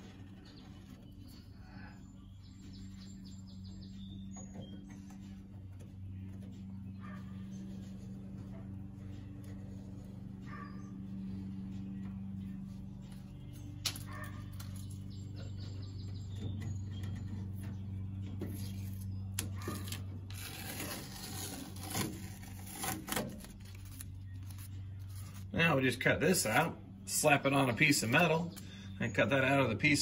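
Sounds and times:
steady low hum: 0.0 - 30.0
cardboard rustling and scraping on metal: 16.7 - 25.6.

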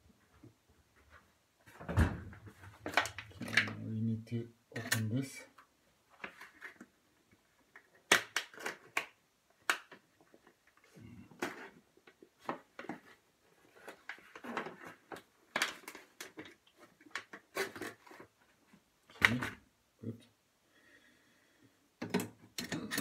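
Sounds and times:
knife cutting plastic wrapping: 17.4 - 18.2.

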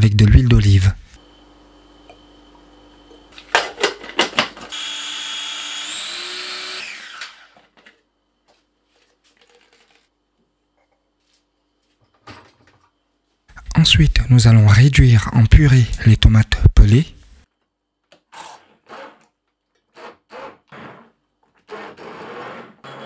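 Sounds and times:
food processor motor running: 4.7 - 7.6.

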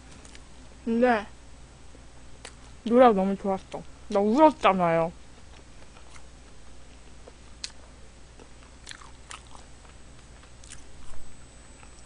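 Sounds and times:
close chewing mouth clicks: 8.4 - 10.8.

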